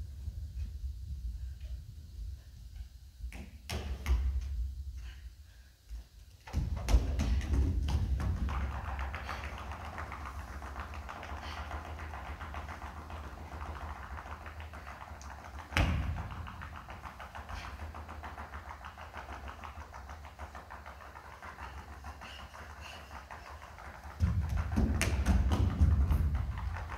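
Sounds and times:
percussive dance music: 6.5 - 26.9.

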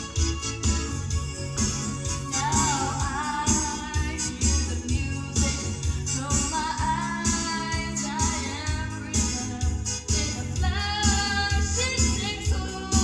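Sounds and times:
karaoke music with beat: 0.0 - 13.0
woman singing into microphone: 2.3 - 13.0.

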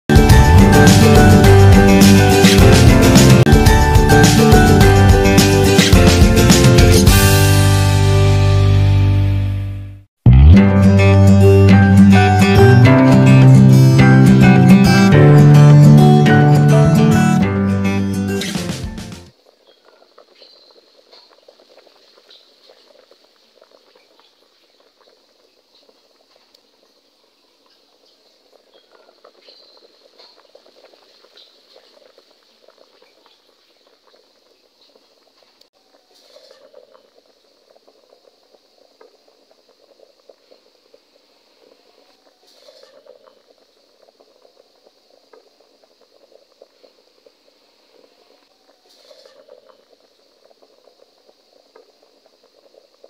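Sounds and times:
water boiling in a pot: 19.3 - 53.0.

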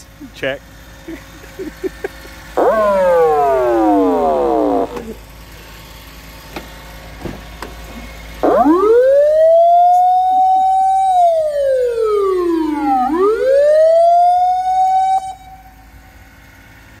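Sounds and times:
fire truck siren wailing: 2.5 - 5.3, 8.4 - 16.5.

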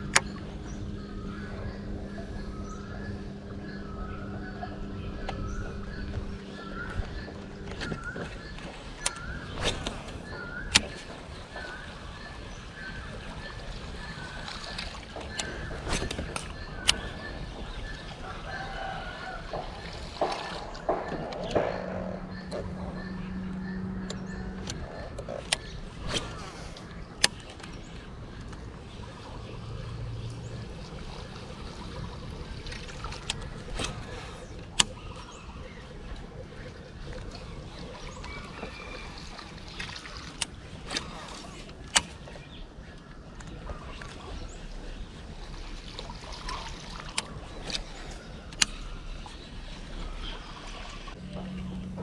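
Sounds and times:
low rumble: 0.0 - 52.0
water moving around kayak: 0.0 - 52.0.

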